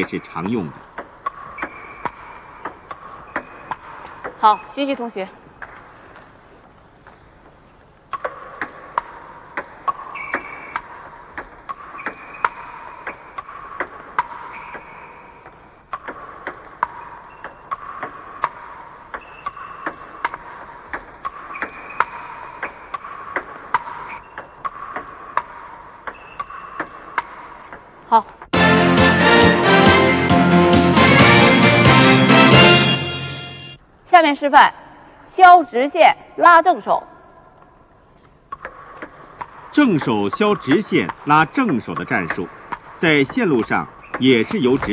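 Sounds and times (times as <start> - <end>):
ball bouncing on table: 0.0 - 5.9, 8.1 - 28.5, 38.5 - 44.9
ping pong ball hitting bats: 0.0 - 6.1, 8.1 - 28.6, 38.5 - 44.9.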